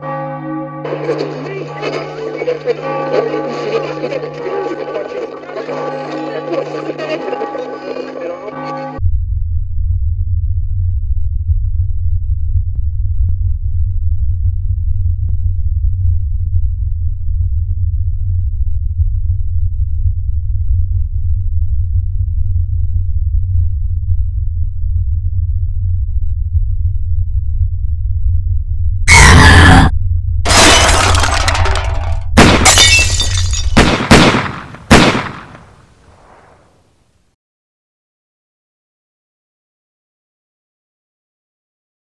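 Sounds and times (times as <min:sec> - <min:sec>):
low bass drone: 0:08.7 - 0:31.3.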